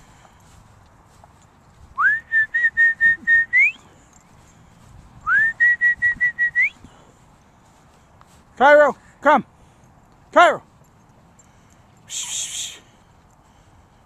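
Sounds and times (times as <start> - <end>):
person whistling: 2.0 - 3.8, 5.2 - 6.8.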